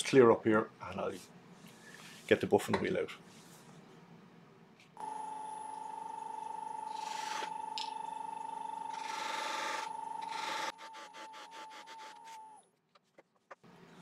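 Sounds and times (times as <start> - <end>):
wood lathe motor whine: 5.0 - 12.6.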